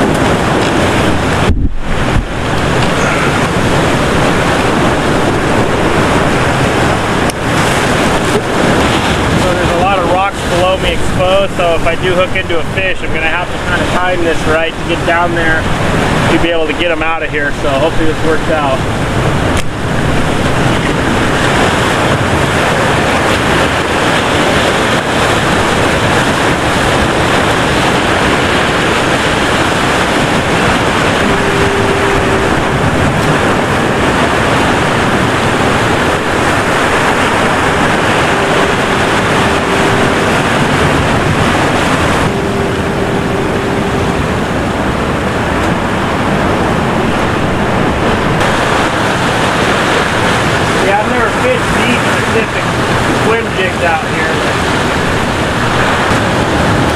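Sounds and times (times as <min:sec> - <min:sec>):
surf breaking against rocks: 0:00.0 - 0:56.9
wind on microphone: 0:00.0 - 0:56.9
short steady hum: 0:18.8 - 0:50.8.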